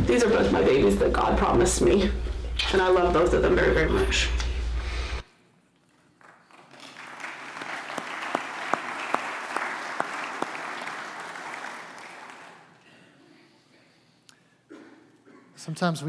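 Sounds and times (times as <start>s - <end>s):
crowd applauding: 6.2s - 12.8s.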